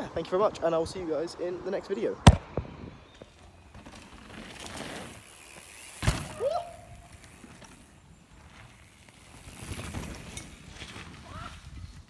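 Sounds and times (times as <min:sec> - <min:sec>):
sharp knock of bike hitting bump: 0:02.2 - 0:02.7, 0:06.0 - 0:06.4
bike tyres rumbling on dirt: 0:02.2 - 0:12.0.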